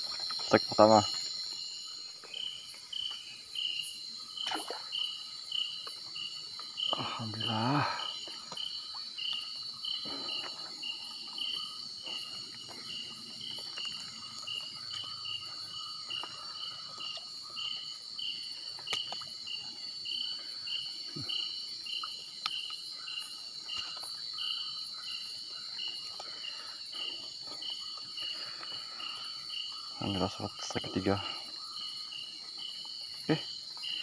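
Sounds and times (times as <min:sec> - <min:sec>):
cricket chirping: 0:00.0 - 0:34.0
high-pitched insect drone: 0:00.0 - 0:34.0.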